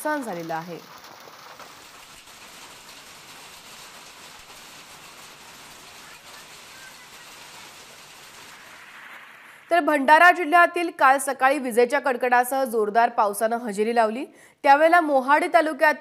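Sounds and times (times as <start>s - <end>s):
heavy rain on a road: 0.0s - 9.7s.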